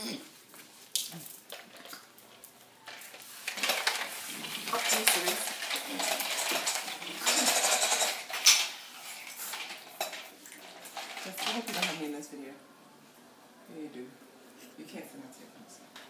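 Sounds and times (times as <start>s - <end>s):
toy scraping on tile floor: 1.5s - 12.0s.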